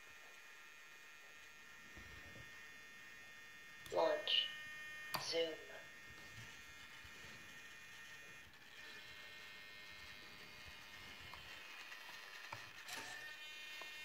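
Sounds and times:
faint electronic whine: 0:00.0 - 0:14.0.

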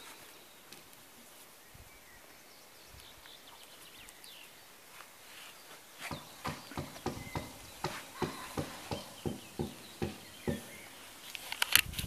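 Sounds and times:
sharp knocks and clicks: 0:06.1 - 0:10.9.

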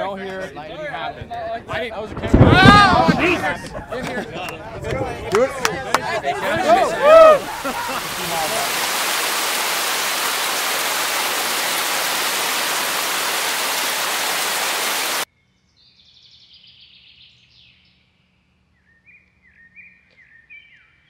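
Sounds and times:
loud rushing hiss: 0:07.4 - 0:15.3.

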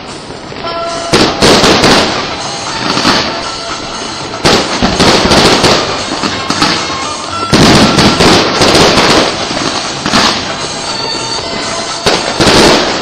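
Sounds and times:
fireworks crackling and banging: 0:00.0 - 0:13.0.

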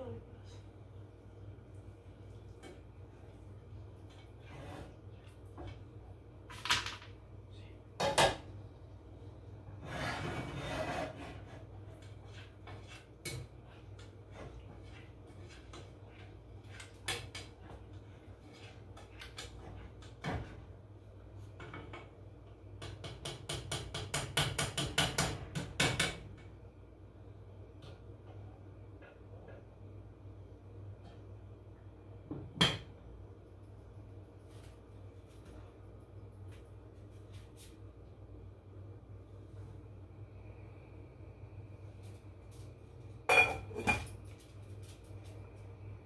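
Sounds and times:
cookware and utensils clattering: 0:08.0 - 0:08.5, 0:43.2 - 0:44.4
steady low hum: 0:26.2 - 0:46.0.

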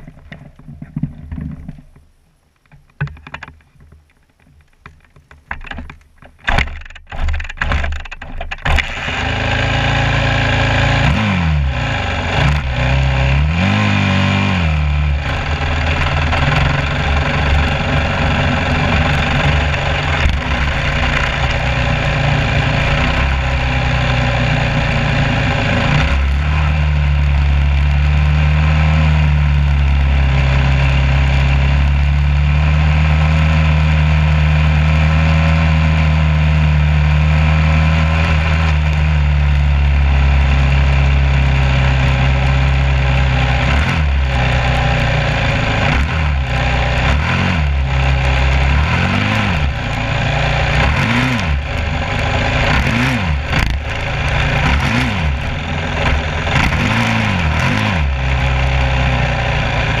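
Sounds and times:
engine revving: 0:08.6 - 1:00.0.

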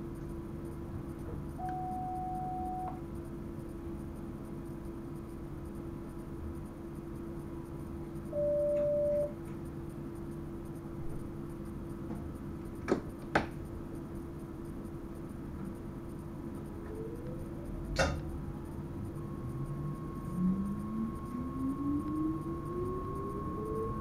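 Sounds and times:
traction motor whine: 0:16.6 - 0:24.0
train cab humming: 0:16.7 - 0:24.0.

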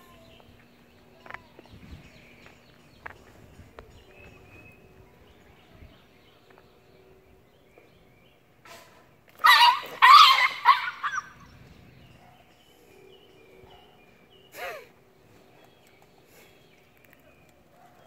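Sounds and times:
puppy yelping: 0:09.4 - 0:11.4.

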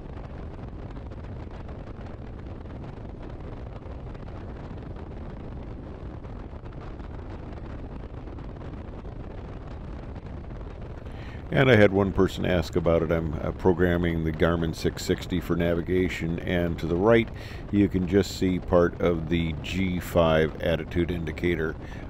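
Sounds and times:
wind rumbling on microphone: 0:00.0 - 0:22.0
biplane engine idling: 0:10.9 - 0:22.0.

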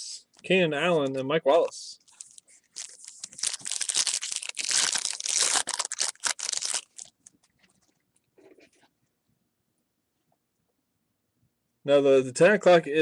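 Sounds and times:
foil wrapper tearing and crinkling: 0:02.1 - 0:07.2
cards rustling: 0:02.1 - 0:08.6.

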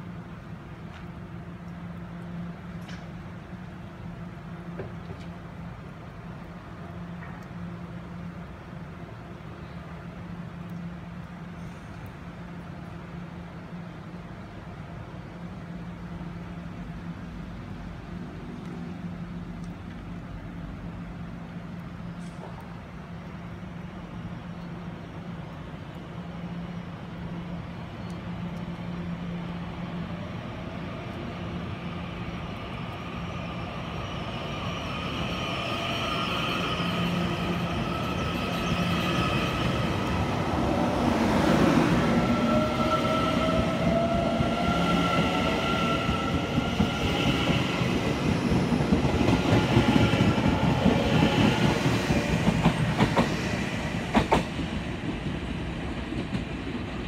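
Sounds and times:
wheels clattering on rails: 0:46.0 - 0:57.0.

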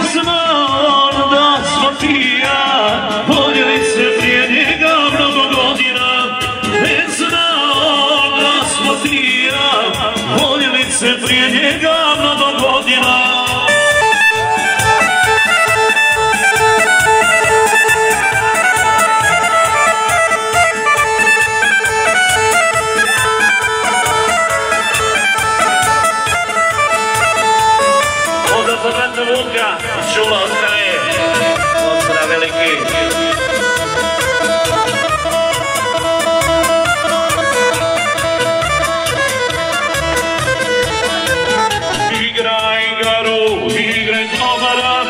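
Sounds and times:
person singing: 0:00.0 - 0:16.2, 0:41.9 - 0:45.0
band music: 0:00.0 - 0:45.0
steady drum beat: 0:00.0 - 0:45.0
reedy lead melody: 0:01.8 - 0:45.0.

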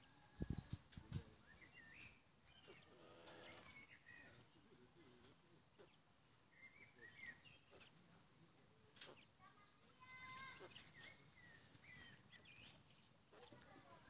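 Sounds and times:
quail chirping: 0:10.4 - 0:13.5.

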